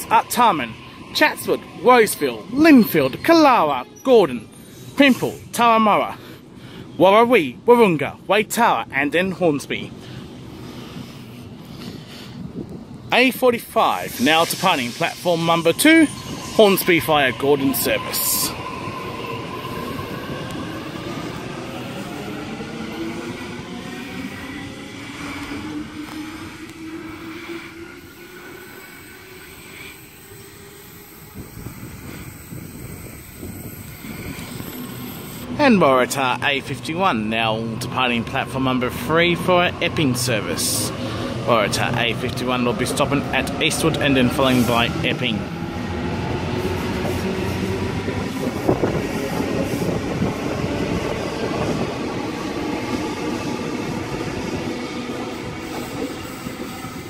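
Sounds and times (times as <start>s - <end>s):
train low rumble: 0.0s - 57.0s.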